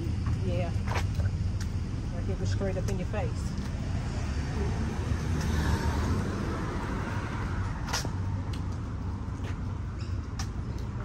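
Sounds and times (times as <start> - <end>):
road traffic rumble: 0.0 - 11.0.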